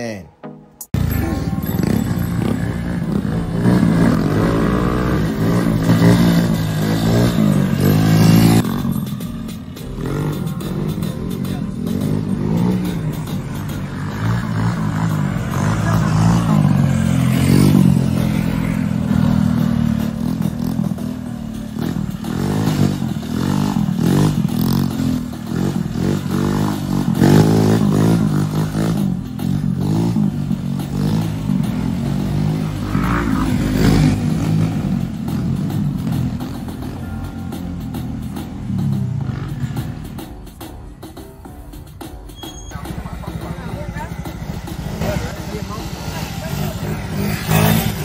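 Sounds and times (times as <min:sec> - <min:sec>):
small motorbike engine revving: 0:43.0 - 0:48.0.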